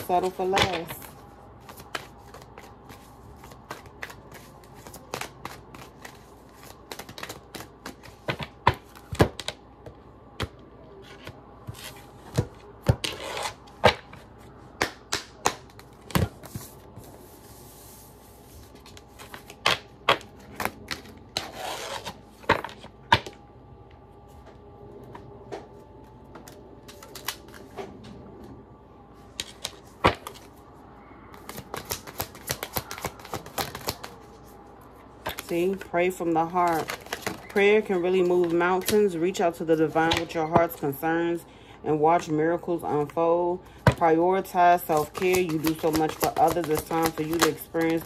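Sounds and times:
cards shuffling: 0:01.6 - 0:09.6, 0:15.1 - 0:23.3, 0:29.3 - 0:30.6, 0:31.3 - 0:34.5, 0:36.4 - 0:39.0, 0:44.6 - 0:48.0
cards clicking and tapping on desk: 0:01.6 - 0:13.2, 0:31.4 - 0:34.2, 0:44.8 - 0:48.0.

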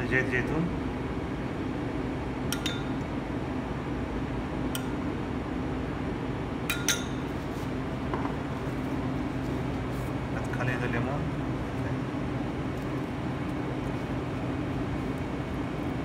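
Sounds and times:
low machine hum: 0:00.0 - 0:16.0
spoons clinking against bowls: 0:02.5 - 0:03.0, 0:06.7 - 0:07.2.

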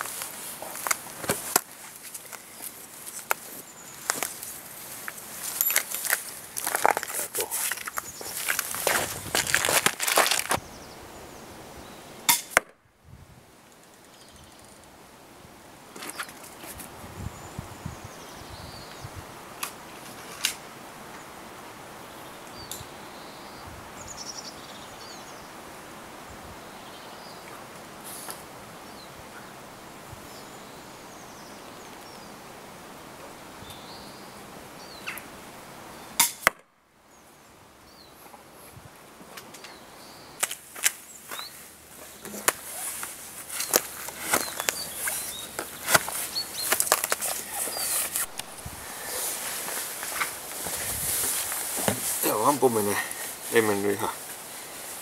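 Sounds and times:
footsteps on dry ground: 0:00.0 - 0:10.6, 0:40.4 - 0:55.0
crossbow snaps and cracks: 0:36.2 - 0:36.6.

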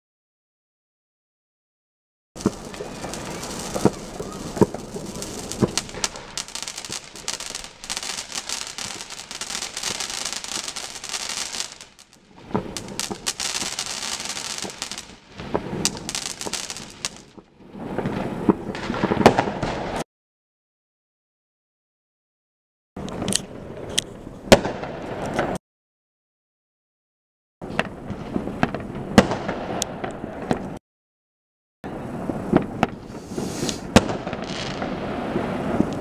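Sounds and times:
fireworks bangs: 0:02.4 - 0:20.0, 0:27.6 - 0:30.8, 0:32.0 - 0:36.0
fireworks crackling: 0:02.4 - 0:20.0, 0:32.0 - 0:36.0.

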